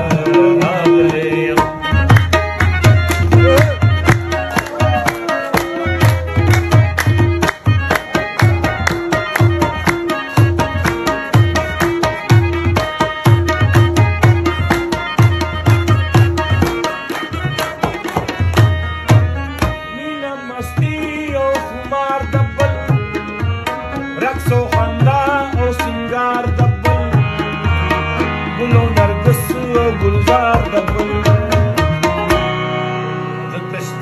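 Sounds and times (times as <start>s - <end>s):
tabla playing quick rhythm: 0.0s - 34.0s
wavering melodic instrument: 1.7s - 20.4s.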